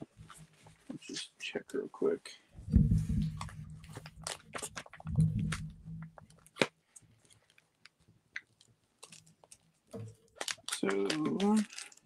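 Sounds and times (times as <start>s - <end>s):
trading cards being handled: 10.4s - 12.0s.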